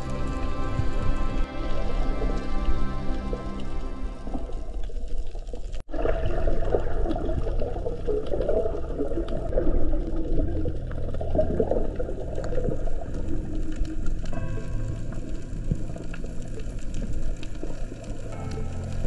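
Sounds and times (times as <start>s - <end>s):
low rumble: 0.0s - 19.0s
underwater bubbling: 0.0s - 19.0s.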